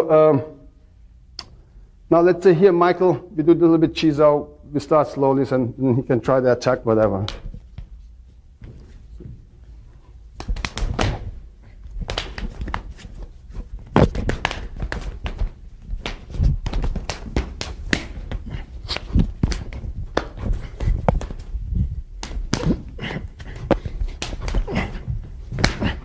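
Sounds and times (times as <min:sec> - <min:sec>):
forearms slapping and knocking: 0:07.0 - 0:08.0, 0:08.6 - 0:26.0.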